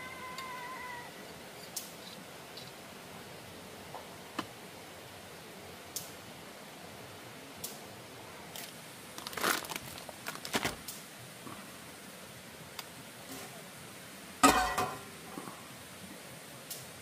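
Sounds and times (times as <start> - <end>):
packaging crinkling: 9.2 - 10.9.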